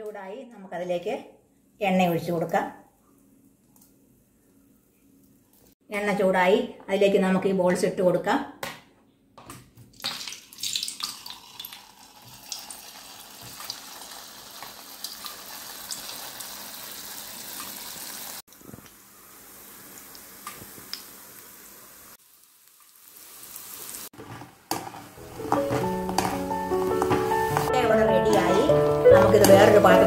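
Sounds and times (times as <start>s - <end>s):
dough deep-frying with pops: 9.4s - 23.1s.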